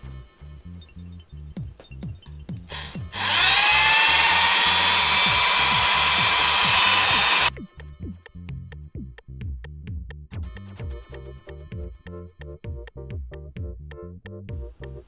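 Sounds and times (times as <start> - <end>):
electric drill drilling plastic: 2.7 - 7.5
electronic music with steady beat: 4.3 - 15.0.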